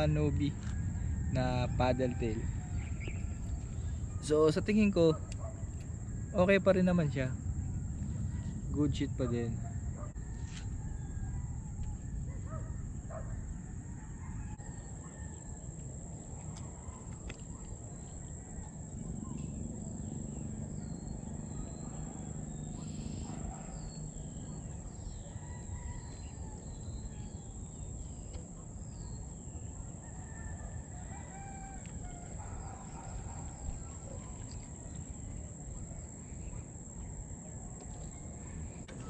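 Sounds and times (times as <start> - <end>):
rooster crowing: 0.0 - 3.4, 10.2 - 12.7, 13.4 - 15.8, 24.8 - 27.5, 29.6 - 33.6
low wind rumble: 0.0 - 39.0
bird chirps: 2.8 - 4.2, 19.0 - 29.7.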